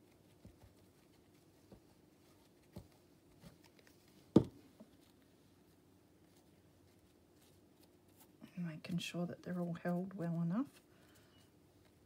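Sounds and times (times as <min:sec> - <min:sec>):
plastic bottle knocking on table: 0:04.4 - 0:04.6.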